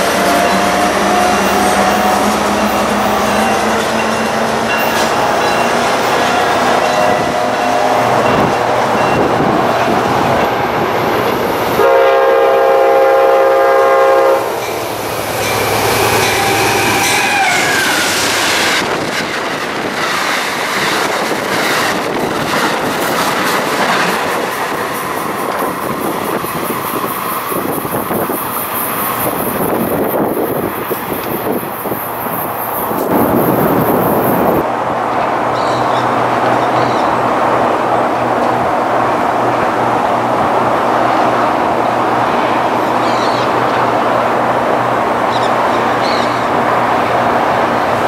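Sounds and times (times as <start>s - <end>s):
train horn blast: 0.0s - 3.6s, 6.7s - 9.0s, 11.7s - 14.7s, 16.0s - 18.2s
rush of passing train cars: 0.0s - 48.0s
wheels clacking over rail joints: 14.6s - 32.0s.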